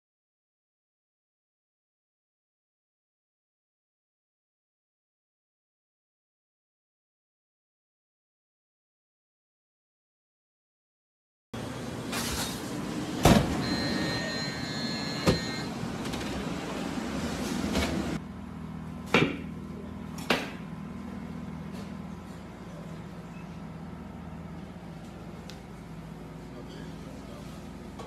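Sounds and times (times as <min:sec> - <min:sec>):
oven fan hum: 0:11.6 - 0:28.0
thin high whine: 0:13.6 - 0:16.0.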